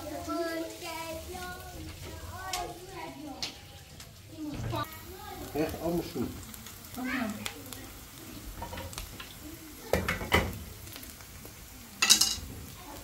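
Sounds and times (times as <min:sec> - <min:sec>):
onions sizzling in a pot: 0:00.0 - 0:13.0
utensil clattering on cookware: 0:08.5 - 0:09.3, 0:09.9 - 0:10.6, 0:12.0 - 0:12.6.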